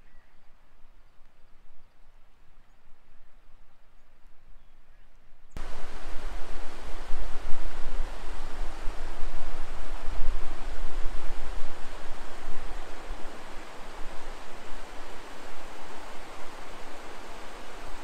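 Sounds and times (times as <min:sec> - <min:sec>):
rushing stream water: 0:05.6 - 0:18.0
wind buffeting microphone: 0:05.6 - 0:18.0.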